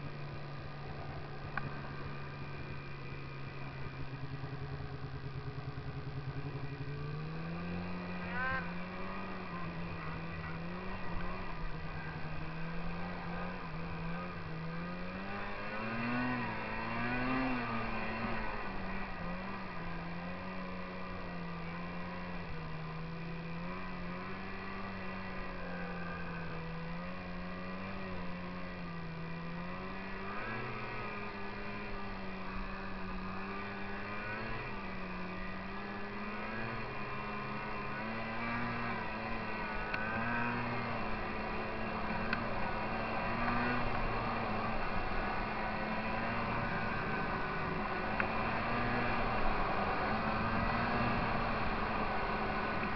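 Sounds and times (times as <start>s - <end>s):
snowmobile engine revving: 5.5s - 52.9s.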